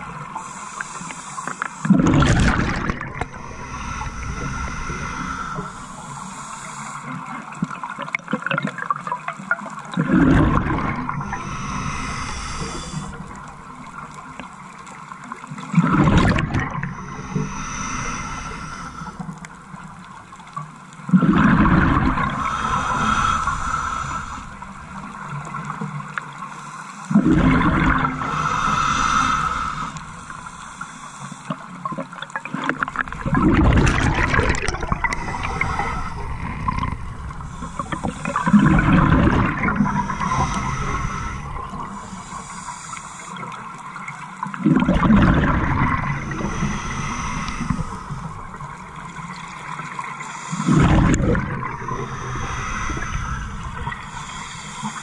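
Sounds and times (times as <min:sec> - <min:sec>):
regulator bubbles gurgling: 0:00.0 - 0:26.4, 0:27.1 - 0:55.0
regulator hiss: 0:17.0 - 0:19.4, 0:22.4 - 0:25.3, 0:28.2 - 0:31.6, 0:34.9 - 0:38.9, 0:39.6 - 0:43.5, 0:46.1 - 0:50.9, 0:51.6 - 0:55.0.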